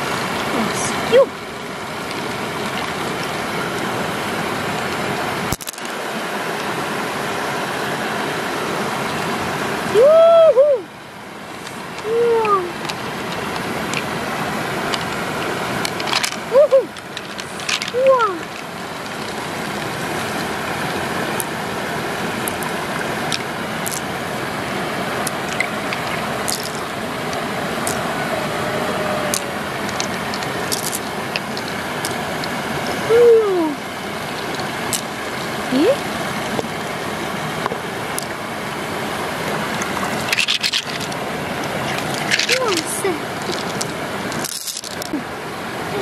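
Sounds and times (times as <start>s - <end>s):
flowing water rushing: 0.0s - 46.0s
pearls clicking against shell: 29.3s - 32.6s, 40.3s - 41.2s, 41.9s - 42.8s, 43.4s - 45.1s.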